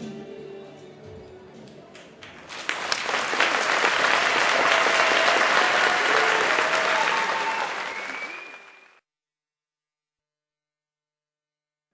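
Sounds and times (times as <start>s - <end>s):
audience applauding: 1.9s - 9.0s.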